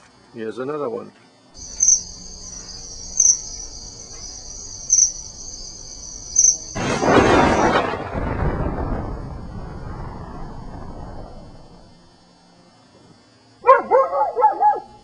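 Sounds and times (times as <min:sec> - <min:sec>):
insect trilling: 0:01.6 - 0:07.8
burst of rushing noise: 0:06.6 - 0:12.0.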